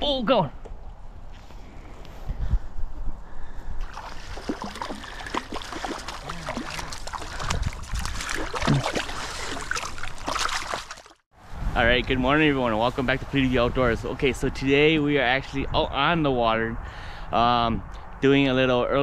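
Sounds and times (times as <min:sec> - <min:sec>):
stream water splashing: 0:03.8 - 0:11.2.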